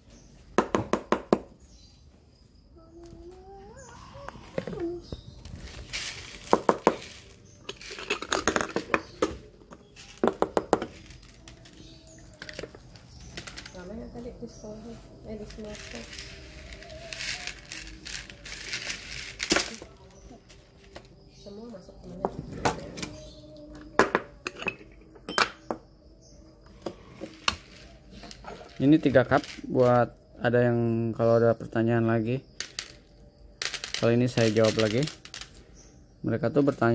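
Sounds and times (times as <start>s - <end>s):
metal pot parts clinking: 7.6s - 9.1s, 24.4s - 25.6s.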